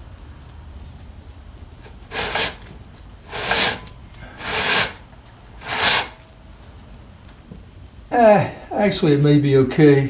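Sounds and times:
saw chain rasping around bar: 1.8s - 2.7s, 3.3s - 5.0s, 5.6s - 6.2s.

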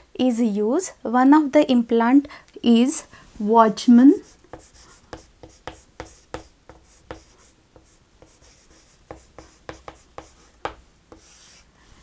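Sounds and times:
chalk writing on chalkboard: 4.2s - 11.7s.

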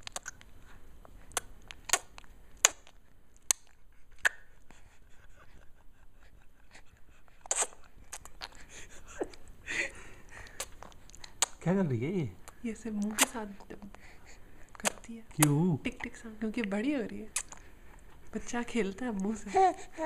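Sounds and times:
baby mouth clicks: 0.0s - 0.5s, 1.3s - 4.4s, 7.4s - 8.6s, 10.5s - 11.6s, 12.5s - 13.4s, 14.7s - 15.6s, 17.4s - 17.6s
soft baby voice: 19.2s - 20.0s.

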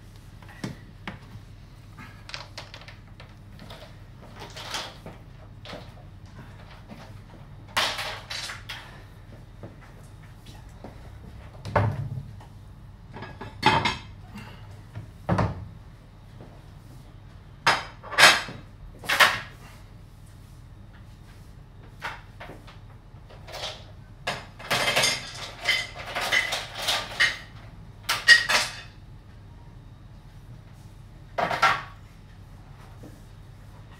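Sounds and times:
objects clattering on kitchen surfaces: 13.1s - 14.2s, 23.3s - 29.0s, 31.4s - 32.0s.

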